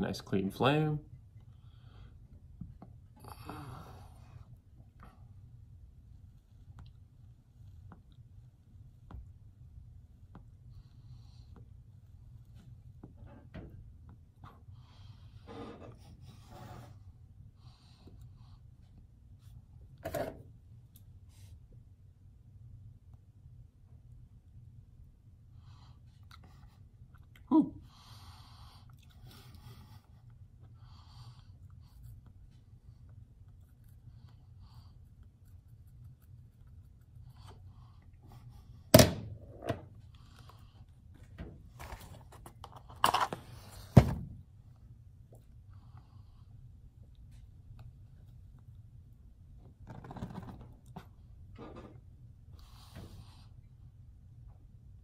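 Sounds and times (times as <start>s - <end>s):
low steady hum: 0.0s - 55.0s
objects set down with thunks: 43.9s - 44.4s.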